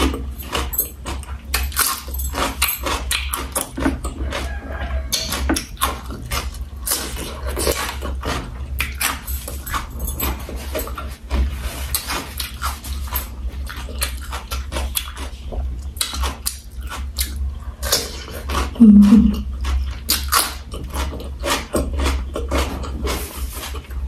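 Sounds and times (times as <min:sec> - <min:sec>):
chewing and wet mouth sounds: 0:00.0 - 0:24.0
low hum: 0:18.7 - 0:19.6.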